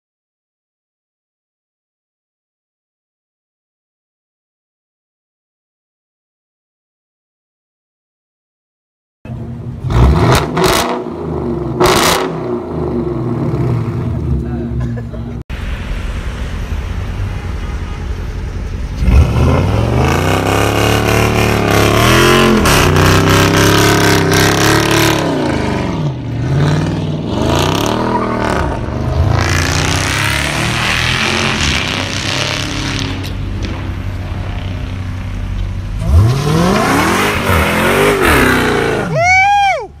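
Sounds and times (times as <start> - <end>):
car engine revving: 9.3 - 14.8, 15.6 - 39.4.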